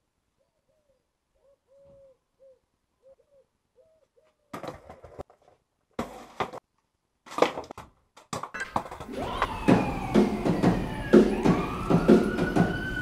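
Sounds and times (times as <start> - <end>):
pigeon cooing: 0.4 - 4.5
skateboards clattering on paving: 4.5 - 9.2
wailing gliding din: 9.0 - 13.0.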